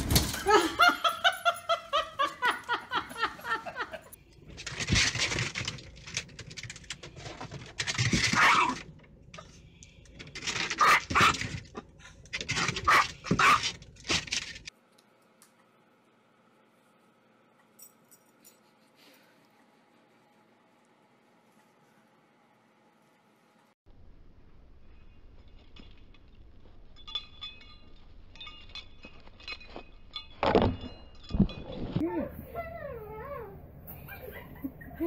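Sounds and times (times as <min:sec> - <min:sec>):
dogs yipping: 0:10.8 - 0:11.4, 0:32.3 - 0:35.0.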